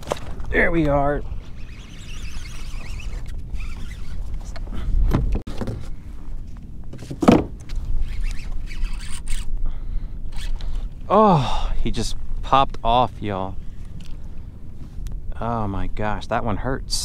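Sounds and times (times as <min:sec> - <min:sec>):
wind rumbling on microphone: 0:00.0 - 0:17.0
fishing reel cranking: 0:01.5 - 0:04.2, 0:08.0 - 0:09.6, 0:10.3 - 0:10.8
handling knocks on rod and kayak: 0:07.0 - 0:07.6.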